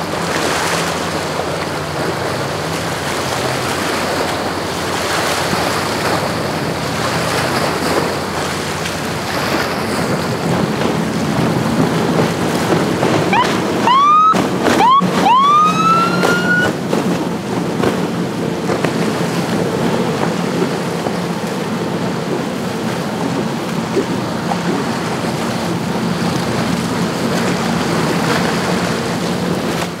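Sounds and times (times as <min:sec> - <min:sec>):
outboard engines running: 0:00.0 - 0:30.0
water rushing past hull: 0:00.0 - 0:30.0
siren whoop: 0:13.3 - 0:16.8.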